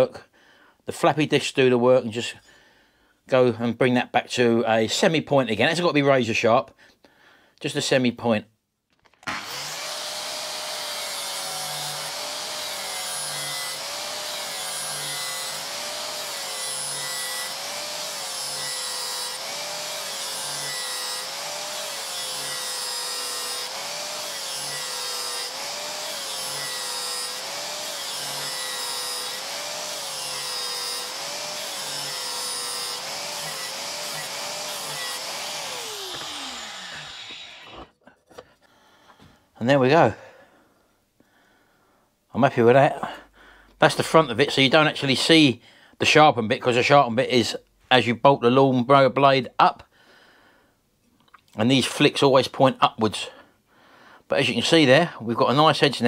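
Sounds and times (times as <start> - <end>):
grinder winding down: 9.2 - 37.9
angle grinder grinding steel: 9.2 - 38.5.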